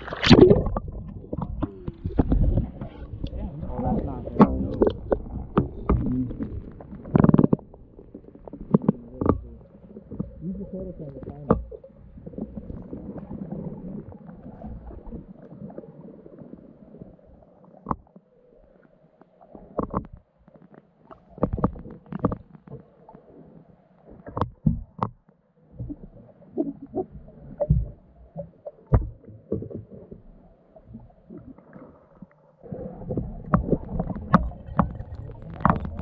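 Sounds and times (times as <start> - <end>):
continuous rumbling noise: 0.0 - 11.7
muffled underwater knocks and thumps: 0.0 - 15.6, 17.8 - 18.2, 19.6 - 23.2, 24.1 - 32.3, 32.9 - 36.0.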